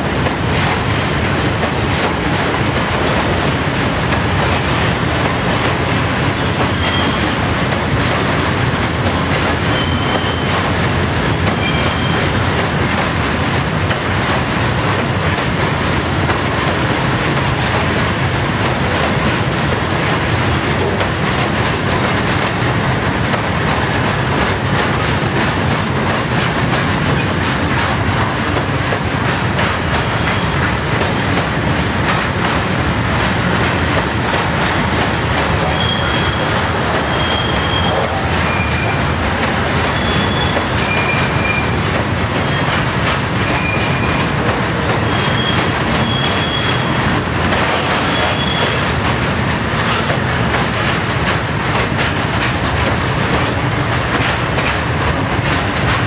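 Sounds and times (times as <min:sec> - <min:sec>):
freight train rumbling past: 0:00.0 - 0:56.0
high-pitched wheel squeals: 0:09.7 - 0:10.5, 0:11.6 - 0:14.8, 0:34.7 - 0:39.2, 0:39.9 - 0:41.7, 0:45.1 - 0:47.0.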